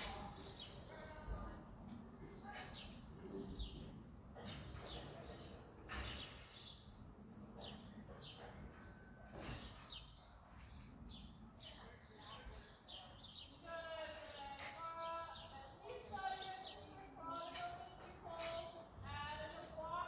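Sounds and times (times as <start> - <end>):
small birds chirping: 2.2 - 20.0.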